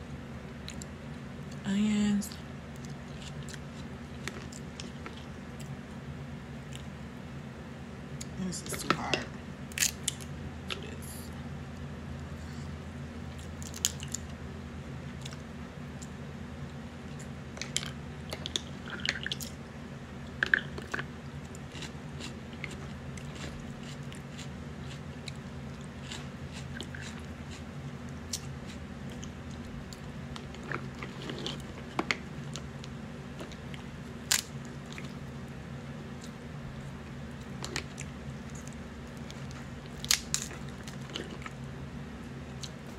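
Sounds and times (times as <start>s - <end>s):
steady low hum: 0.0s - 42.9s
chewing: 2.7s - 5.8s, 20.3s - 33.9s, 34.6s - 35.3s, 36.1s - 36.4s, 37.3s - 41.7s
crab shells cracking: 13.6s - 14.2s, 29.2s - 35.1s, 37.5s - 41.6s.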